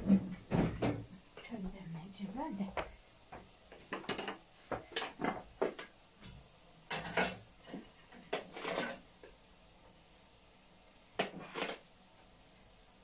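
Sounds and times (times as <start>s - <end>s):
kitchenware clinking and scraping: 3.8s - 5.9s, 6.9s - 9.1s, 11.2s - 11.8s.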